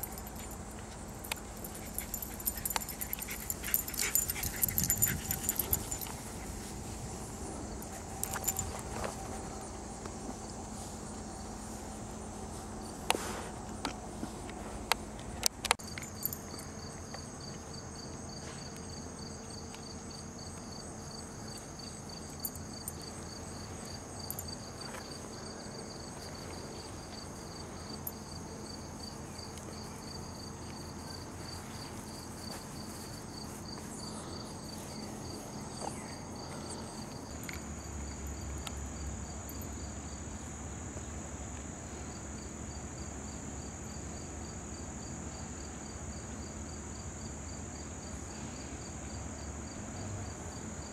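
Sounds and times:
continuous high trill: 0.0s - 17.4s
crickets chirping: 0.0s - 50.9s.

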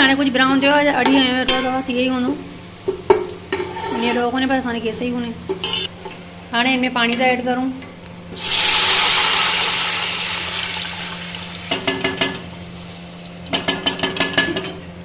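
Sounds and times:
water hissing in hot oil: 8.4s - 13.7s.

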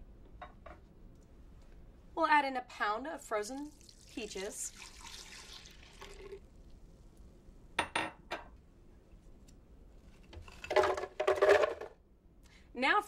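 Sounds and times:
fruit clattering in blender: 10.5s - 12.0s.

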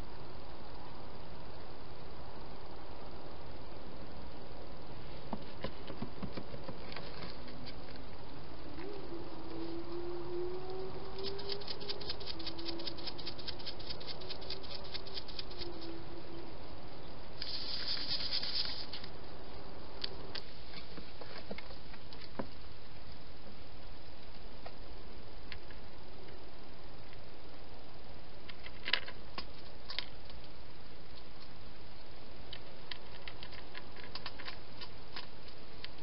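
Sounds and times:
constant hiss: 0.0s - 36.0s
hedgehog rustling through dry leaves: 11.1s - 16.0s, 17.4s - 19.1s.

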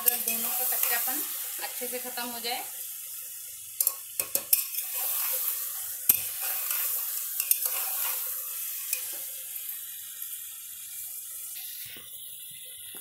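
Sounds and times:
metal spatula clinking on pot: 0.0s - 1.1s, 3.8s - 5.5s, 6.1s - 9.2s
meat sizzling in hot oil: 0.0s - 13.0s.

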